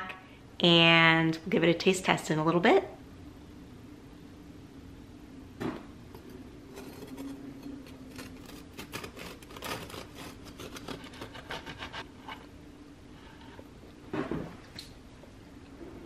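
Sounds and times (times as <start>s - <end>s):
knife sawing through crusty bread: 8.0s - 12.1s.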